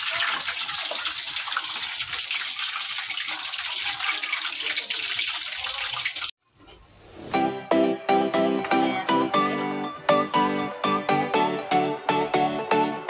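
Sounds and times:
hot oil sizzling: 0.0 - 6.4
music: 7.1 - 13.0.

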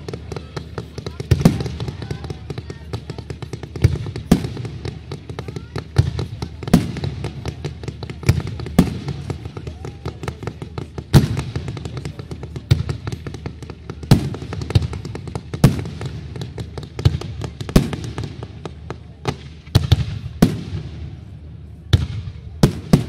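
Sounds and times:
firework bangs with echo: 0.0 - 23.0
firework crackling: 0.0 - 23.0.

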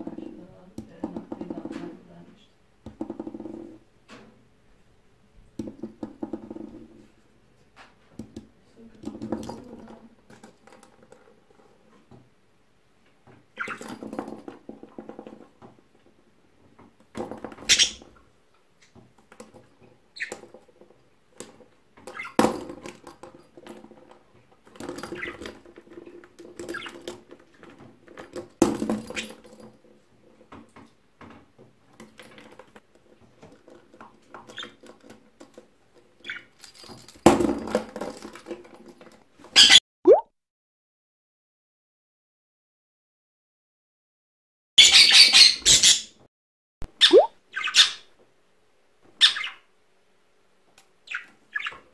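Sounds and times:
bird toys rattling: 34.4 - 37.3.

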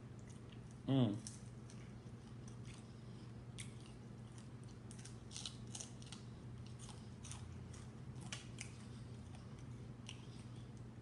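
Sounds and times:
low steady hum: 0.0 - 11.0
crispy fish crunching: 3.5 - 10.9.

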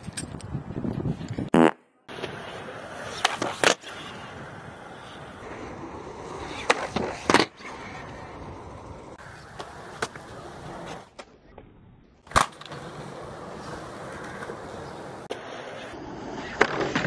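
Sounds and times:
skateboard wheels rolling on concrete: 0.0 - 17.0
skateboard clacks and slaps: 3.1 - 4.0.

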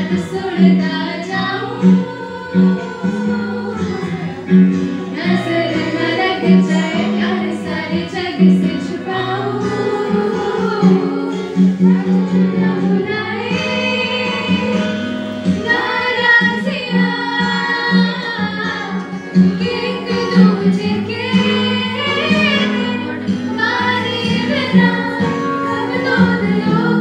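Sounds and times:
backing music: 0.0 - 27.0
women singing: 0.0 - 27.0.

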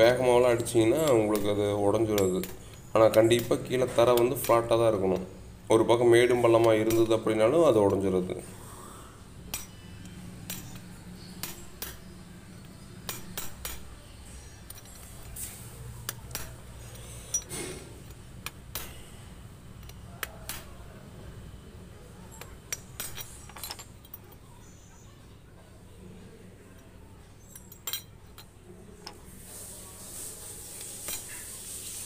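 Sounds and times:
hammer tapping on steel rod: 13.0 - 13.9.

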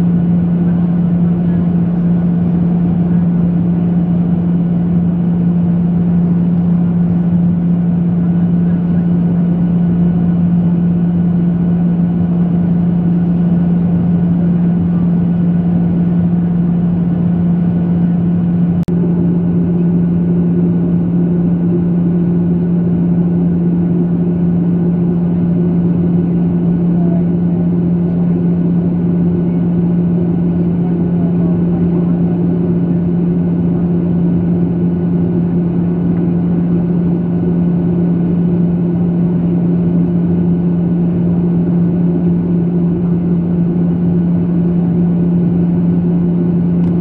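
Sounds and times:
jet airliner cabin drone: 0.0 - 47.0.

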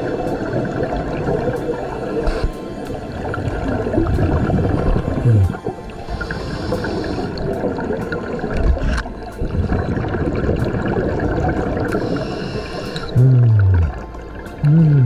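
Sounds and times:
underwater bubbling and gurgling: 0.0 - 15.0
faint hiss: 11.9 - 13.2.

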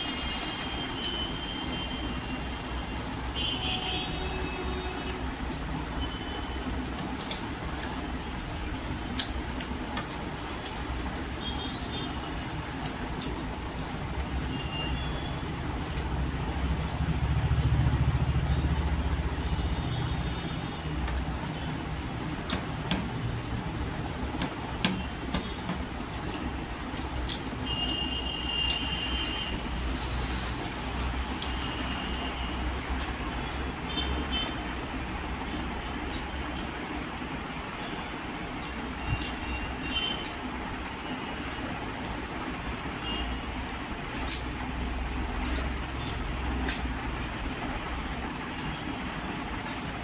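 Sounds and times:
chewing: 4.3 - 11.4.

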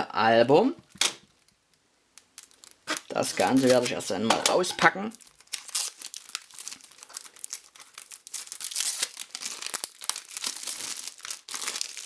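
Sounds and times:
cellophane crackling: 1.2 - 12.0.

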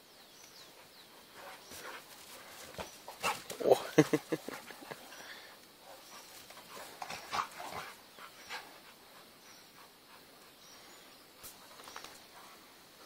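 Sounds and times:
dogs scuffling: 11.5 - 12.6.

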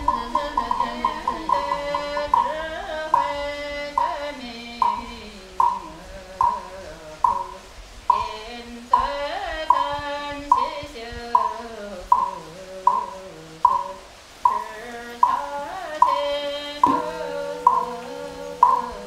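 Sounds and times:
wooden fish knocking: 0.0 - 8.4, 11.4 - 16.2, 16.8 - 18.0
person chanting: 0.0 - 19.0.

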